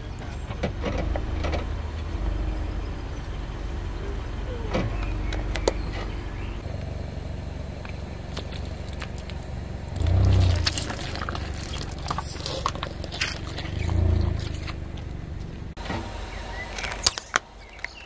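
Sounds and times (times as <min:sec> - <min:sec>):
car rumbling: 0:00.0 - 0:18.0
plastic cups cracking under tyre: 0:07.9 - 0:15.7, 0:16.7 - 0:18.0.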